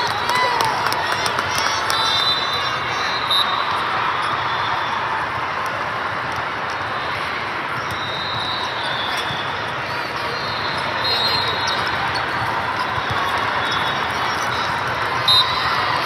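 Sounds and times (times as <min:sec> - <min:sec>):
reverberant gym hubbub: 0:00.0 - 0:16.0
shoes squeaking on court: 0:07.7 - 0:15.7.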